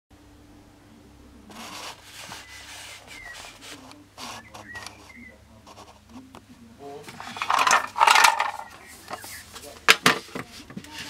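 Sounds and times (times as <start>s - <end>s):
paper pages rustling: 1.5s - 6.2s
faint high chirps: 4.3s - 5.4s.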